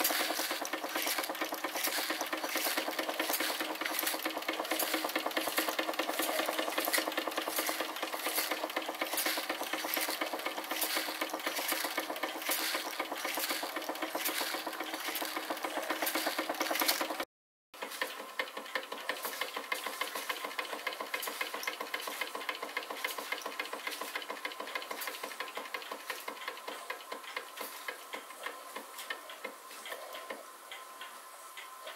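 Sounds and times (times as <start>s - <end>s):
metal buckets clattering: 0.0s - 17.2s
toy steam engine running: 0.0s - 31.9s.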